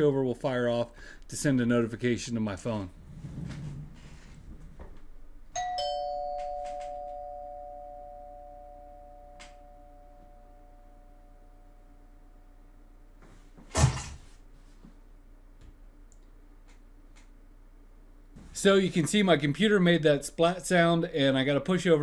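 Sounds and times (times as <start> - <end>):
doorbell chime ding-dong: 5.6 - 11.8.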